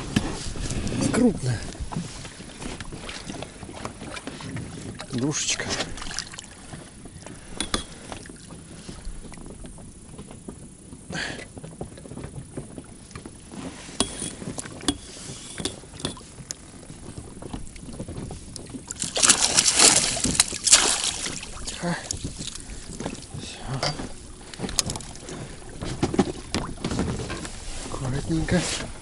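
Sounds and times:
water lapping against boat: 0:00.0 - 0:29.0
fish thrashing in water: 0:00.5 - 0:09.5, 0:15.8 - 0:27.7.

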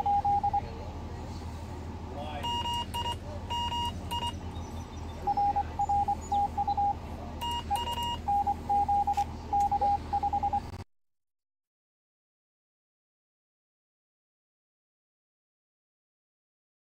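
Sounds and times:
higher morse code beeps: 0:00.0 - 0:00.7, 0:02.4 - 0:04.4, 0:05.2 - 0:10.8
lower morse code beeps: 0:00.0 - 0:00.7, 0:02.4 - 0:04.4, 0:05.2 - 0:10.8
steady low hum: 0:00.0 - 0:10.8.

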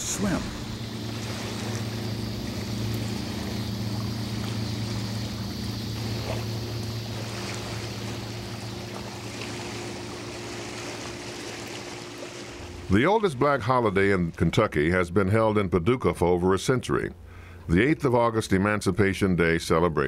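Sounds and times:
water and air hiss: 0:00.0 - 0:12.9
boat engine droning: 0:00.0 - 0:20.0.

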